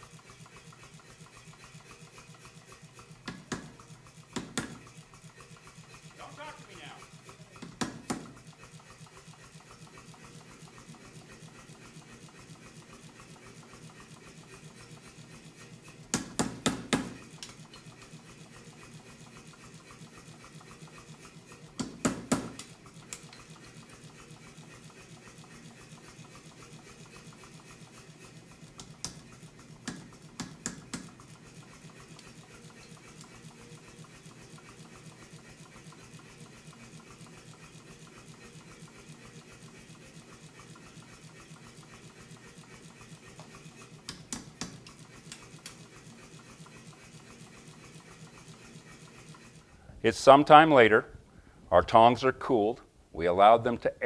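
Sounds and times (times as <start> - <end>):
power hammer striking steel: 16.1 - 17.2, 21.8 - 23.2.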